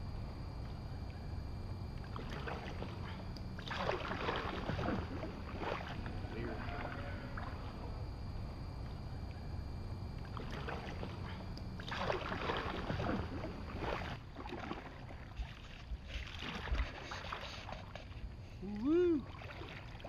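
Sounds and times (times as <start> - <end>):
paddle splashing and dripping: 2.0 - 7.9, 10.2 - 20.0.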